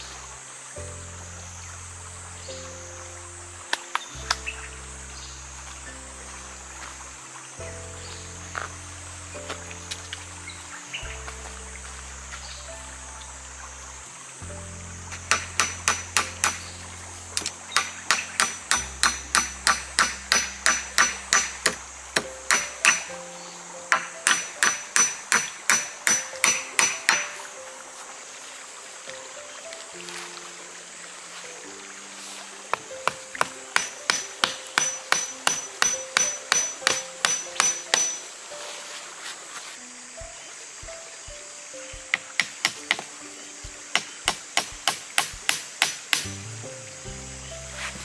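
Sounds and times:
metal blade chopping wood: 0:15.2 - 0:16.7, 0:17.4 - 0:23.1, 0:23.9 - 0:27.4, 0:33.0 - 0:38.2, 0:42.0 - 0:46.5
hand tool striking with ring: 0:22.5 - 0:23.1, 0:33.8 - 0:38.2.

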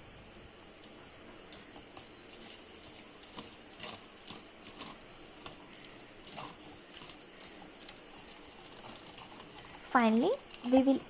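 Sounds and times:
hand squelching marinade: 0:01.5 - 0:09.8.

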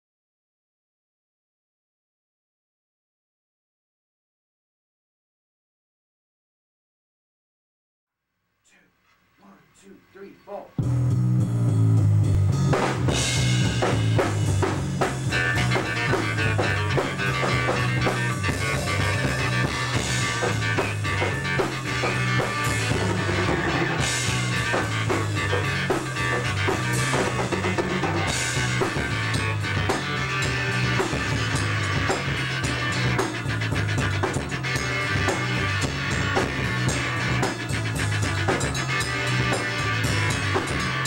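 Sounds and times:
drum beats: 0:09.4 - 0:41.0
low bass notes: 0:09.4 - 0:41.0.

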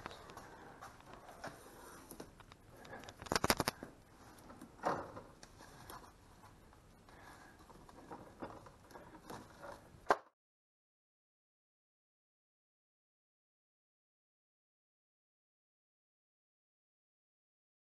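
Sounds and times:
rattle of clicks: 0:02.4 - 0:03.8.

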